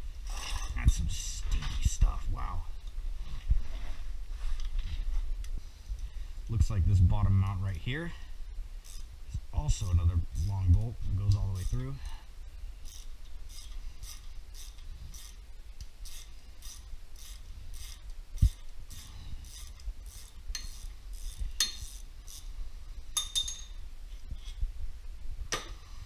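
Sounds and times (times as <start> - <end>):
socket ratchet clicking: 12.9 - 15.4, 16.0 - 22.4
metal clinks: 21.6 - 21.9, 23.1 - 23.8.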